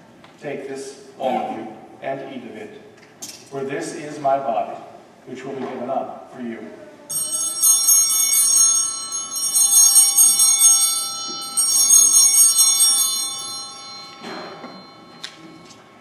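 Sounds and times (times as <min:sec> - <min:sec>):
altar bells ringing: 0:07.1 - 0:16.0.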